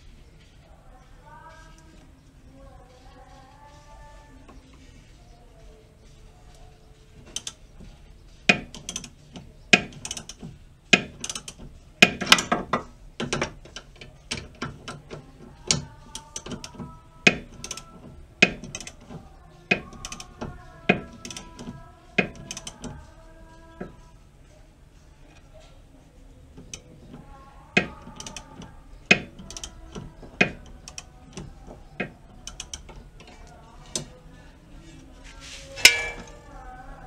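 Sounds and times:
ratchet wrench clicking: 0:08.5 - 0:09.2, 0:09.8 - 0:12.6, 0:15.7 - 0:19.0, 0:19.7 - 0:22.9, 0:29.1 - 0:31.1, 0:32.4 - 0:33.0.

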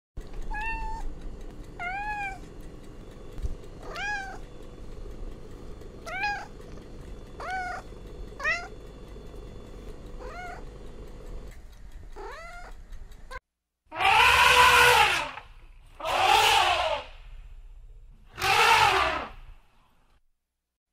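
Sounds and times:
cat meowing: 0:00.5 - 0:01.0, 0:03.8 - 0:04.5, 0:06.0 - 0:06.5, 0:07.4 - 0:07.8, 0:08.4 - 0:08.8, 0:10.2 - 0:10.6, 0:12.2 - 0:12.8
elephant trumpeting: 0:13.9 - 0:15.4, 0:16.0 - 0:17.2, 0:18.3 - 0:19.4.

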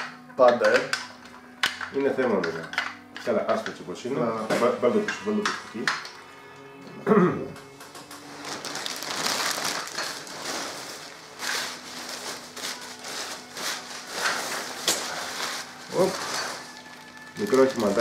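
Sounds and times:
packing paper crinkling: 0:08.2 - 0:18.0.

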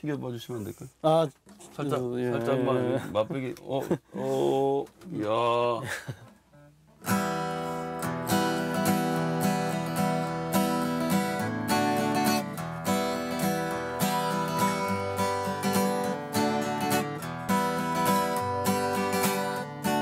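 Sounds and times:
acoustic guitar strumming: 0:06.2 - 0:20.0.

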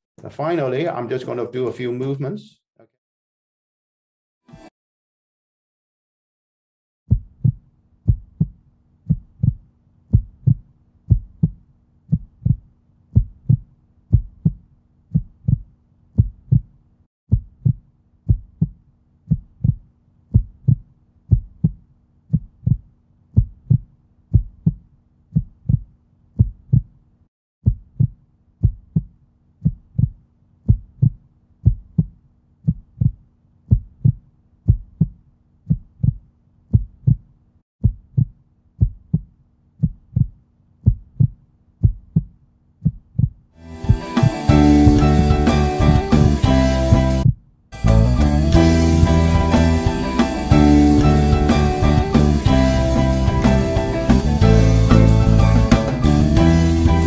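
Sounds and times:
low thudding beats: 0:07.1 - 0:16.7, 0:17.3 - 0:22.8, 0:27.6 - 0:37.2, 0:37.8 - 0:57.0.

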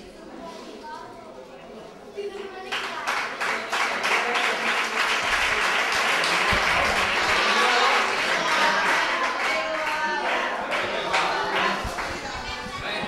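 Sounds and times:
voices: 0:00.0 - 0:13.0
audience applauding: 0:02.7 - 0:13.0.

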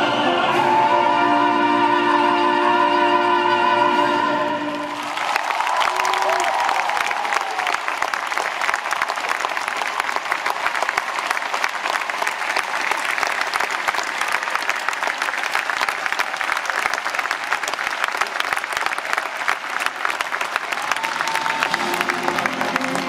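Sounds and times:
large audience applauding: 0:04.7 - 0:23.0.

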